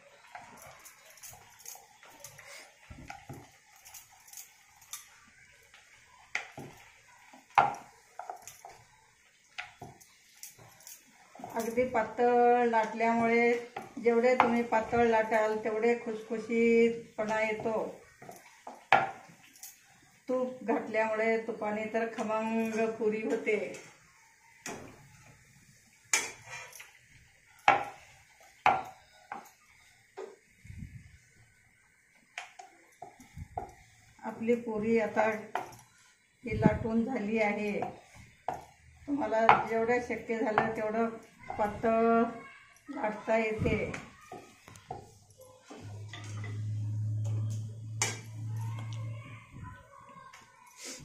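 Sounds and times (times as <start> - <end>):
kitchen utensils knocking and clattering: 6.3 - 15.8, 17.2 - 19.9, 26.1 - 30.4, 32.4 - 35.9, 36.7 - 42.2, 43.0 - 48.8
kitchen utensils knocking: 26.1 - 30.4, 39.4 - 42.2.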